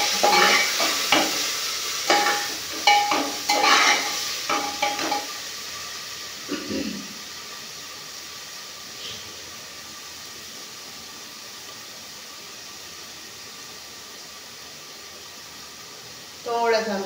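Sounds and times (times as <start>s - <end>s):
spatula scraping metal pot: 0.0s - 1.3s, 2.1s - 5.2s
frying sizzle: 0.0s - 17.0s.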